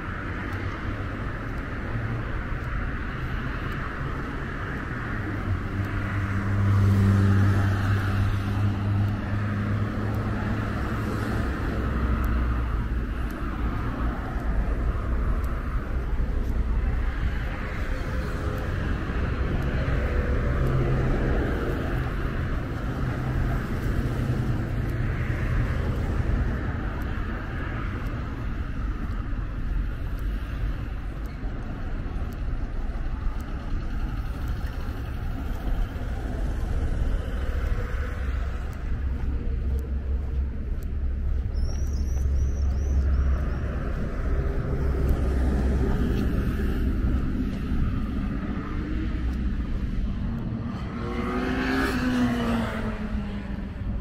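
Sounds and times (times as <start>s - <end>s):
engine hum: 0.0s - 54.0s
road traffic rumble: 0.0s - 54.0s
small bird chirping: 41.4s - 43.6s.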